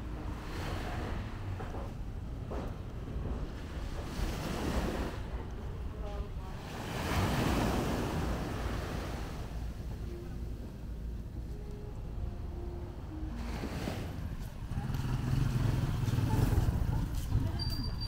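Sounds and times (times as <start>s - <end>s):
small waves breaking on sand: 6.6s - 9.6s.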